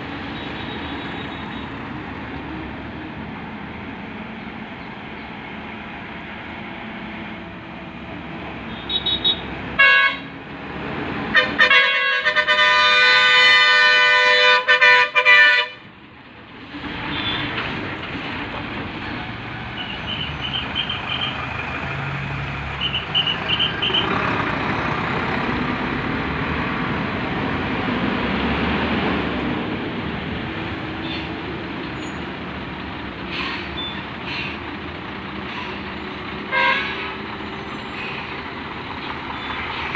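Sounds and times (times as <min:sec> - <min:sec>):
bus engine and tyres: 0:00.0 - 0:39.9
bus horn long blast: 0:08.7 - 0:10.4, 0:11.3 - 0:15.8, 0:22.8 - 0:24.2, 0:36.5 - 0:37.2.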